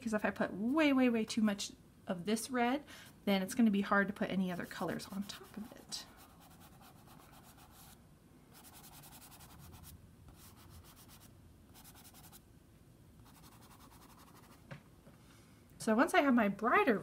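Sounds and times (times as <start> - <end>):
chalk pastel scratching paper: 4.6 - 12.4, 13.2 - 14.6.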